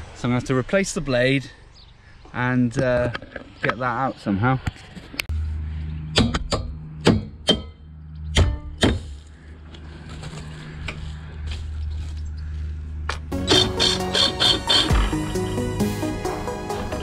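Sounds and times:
hammer striking steel bar: 0:06.1 - 0:09.2
background music: 0:13.3 - 0:17.0.

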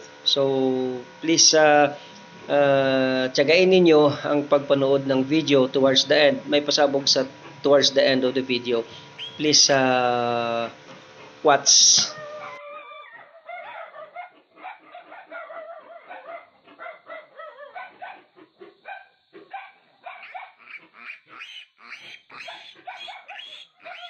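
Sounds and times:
piglet squealing: 0:12.0 - 0:17.9, 0:20.1 - 0:24.0.

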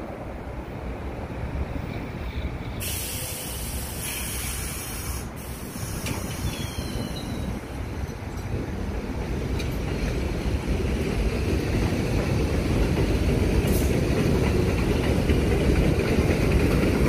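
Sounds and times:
low train rumble: 0:00.0 - 0:17.0
train air brakes hissing: 0:02.3 - 0:07.8, 0:13.6 - 0:14.0.

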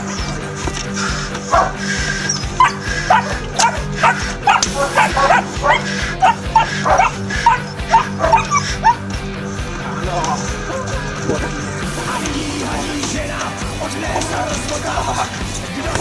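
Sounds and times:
background music: 0:00.0 - 0:16.0
puppy yapping: 0:01.5 - 0:09.1.

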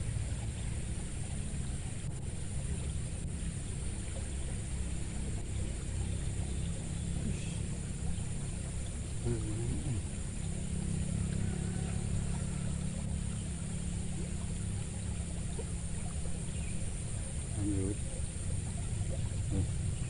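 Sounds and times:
motor engine humming: 0:00.0 - 0:20.0.

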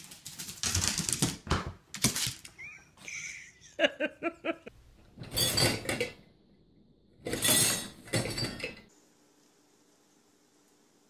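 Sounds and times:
dishes and wire rack rattling: 0:05.1 - 0:06.2, 0:07.2 - 0:08.9.

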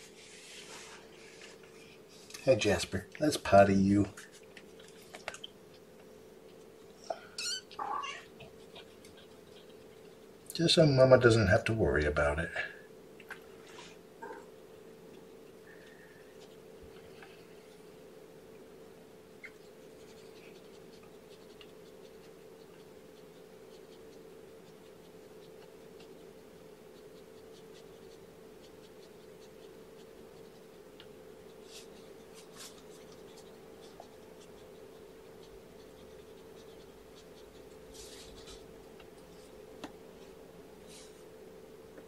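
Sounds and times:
wipe scratching and rustling: 0:00.0 - 0:02.7, 0:19.6 - 0:41.3
steady hum: 0:00.0 - 0:42.0.

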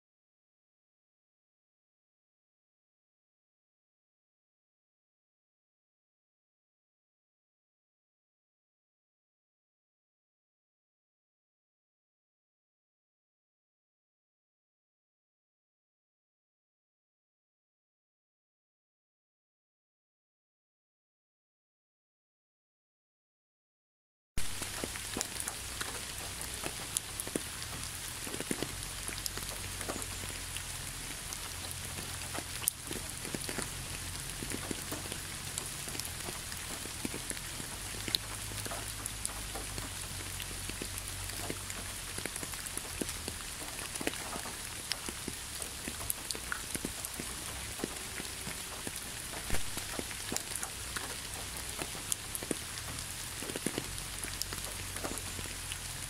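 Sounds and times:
steady rain with ticking drops: 0:24.4 - 0:56.0.

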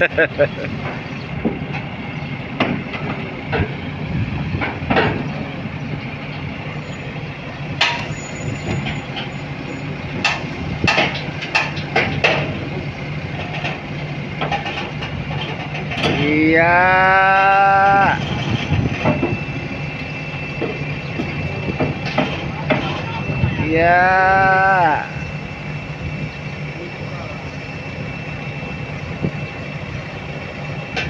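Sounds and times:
diesel engine running: 0:00.0 - 0:31.0
steel tracks clanking: 0:00.0 - 0:31.0
loud rising tone: 0:16.2 - 0:31.0.

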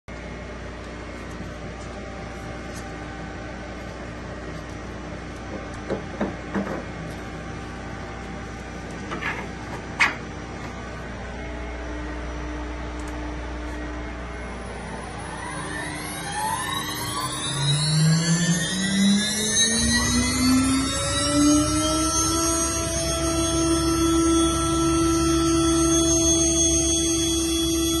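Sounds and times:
workshop machinery hum: 0:00.1 - 0:28.0
low tone: 0:10.2 - 0:28.0
faint steady tones: 0:10.8 - 0:28.0.

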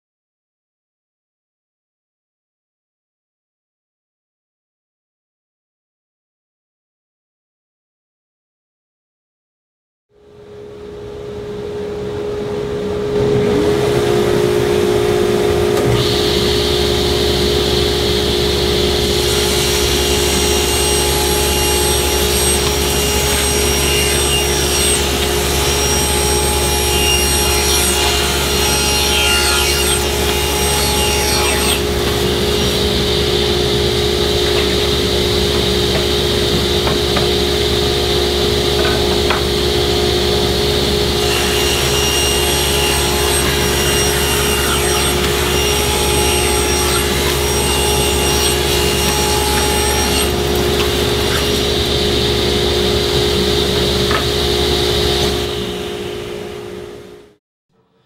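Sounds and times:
shop vacuum running: 0:11.0 - 0:57.4
table saw running: 0:12.5 - 0:57.1
saw cutting wood board: 0:15.6 - 0:56.1.

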